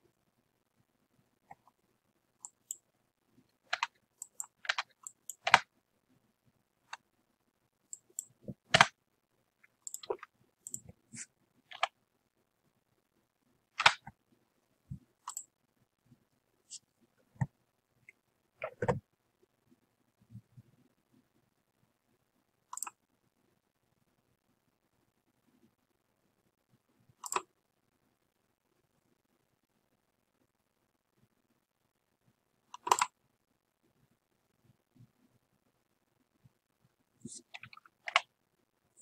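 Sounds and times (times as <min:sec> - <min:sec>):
keyboard typing: 0:02.4 - 0:02.9, 0:03.5 - 0:05.7, 0:07.9 - 0:09.0, 0:09.6 - 0:12.0, 0:13.7 - 0:14.2, 0:14.9 - 0:15.5, 0:22.7 - 0:23.0, 0:27.2 - 0:27.5, 0:32.7 - 0:33.2, 0:37.3 - 0:38.3
mouse button clicks: 0:27.2 - 0:27.5.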